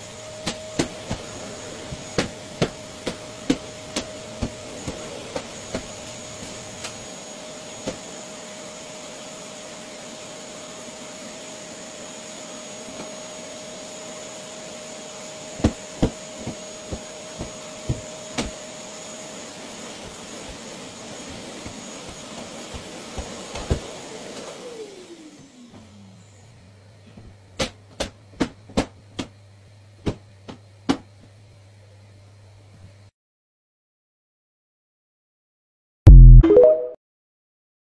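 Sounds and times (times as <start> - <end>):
vacuum motor winding down: 0.0 - 27.0
vacuum cleaner running: 0.0 - 33.1.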